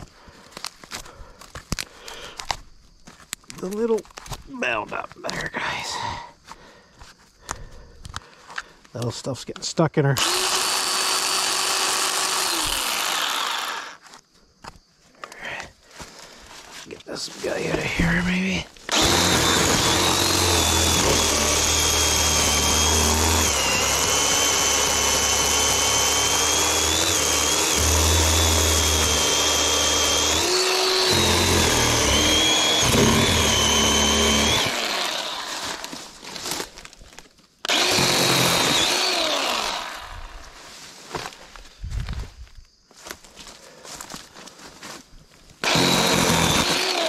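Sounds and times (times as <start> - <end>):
chainsaw cutting brush: 10.2 - 14.2, 17.4 - 37.0, 37.6 - 41.4, 45.6 - 47.0.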